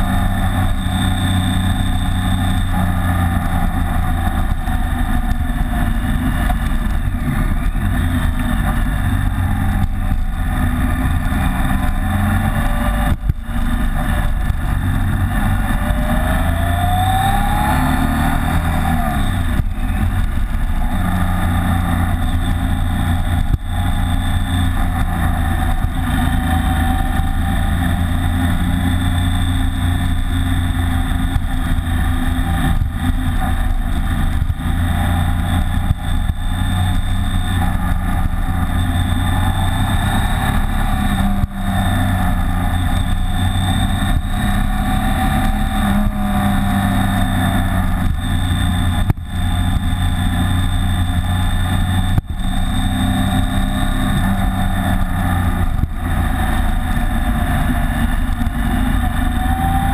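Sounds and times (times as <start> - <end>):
motorcycle engine running: 0.0 - 59.9
rushing wind: 0.0 - 59.9.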